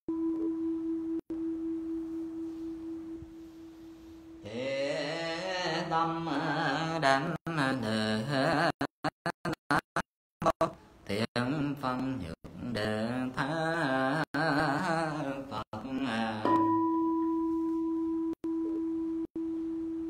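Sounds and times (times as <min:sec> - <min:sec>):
person chanting: 0:04.4 - 0:08.9, 0:10.4 - 0:16.9
temple bowl bell ringing: 0:16.5 - 0:18.3.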